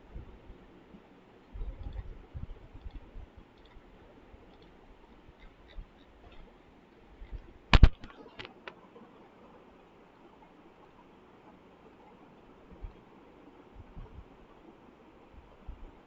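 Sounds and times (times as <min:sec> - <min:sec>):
computer mouse clicking: 0:01.8 - 0:02.1.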